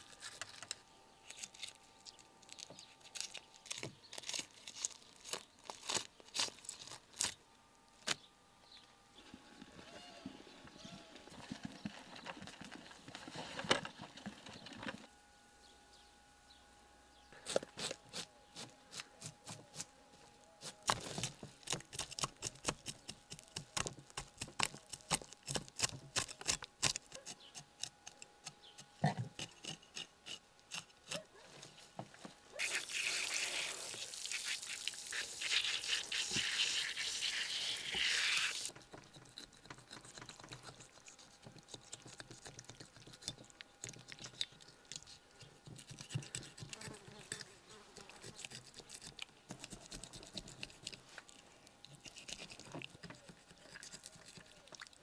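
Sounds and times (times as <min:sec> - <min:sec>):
loud continuous hiss: 0:32.4 - 0:38.7.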